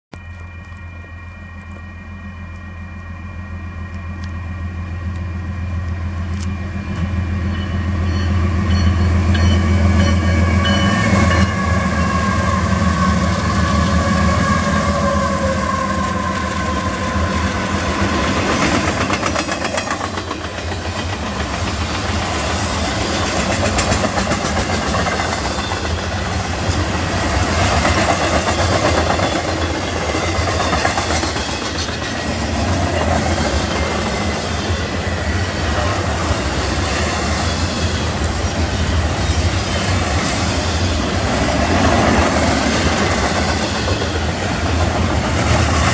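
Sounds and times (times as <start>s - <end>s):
locomotive engine drone: 0.1s - 45.9s
locomotive whine: 0.1s - 45.9s
train wheels clattering: 17.9s - 34.9s, 35.8s - 45.9s.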